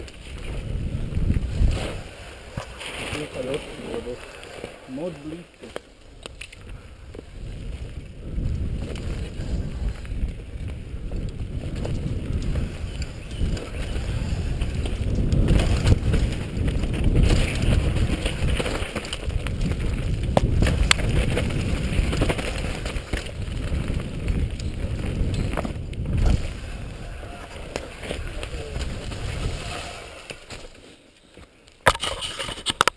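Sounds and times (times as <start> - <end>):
wind buffeting microphone: 0.0 - 5.4, 6.1 - 30.5
bike tyres rumbling on dirt: 0.0 - 31.1
bike knocks and rattles: 8.4 - 26.5.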